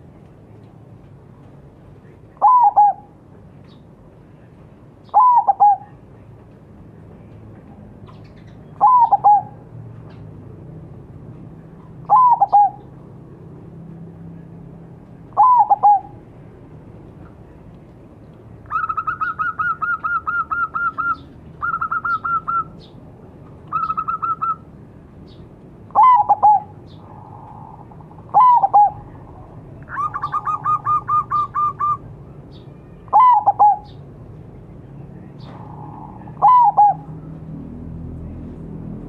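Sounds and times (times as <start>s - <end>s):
dove cooing rapidly: 2.4s - 3.1s, 5.1s - 6.0s, 8.8s - 9.6s, 12.1s - 12.9s, 15.4s - 16.2s, 18.7s - 22.8s, 23.7s - 24.6s, 25.9s - 32.0s, 33.1s - 34.0s, 35.6s - 37.1s.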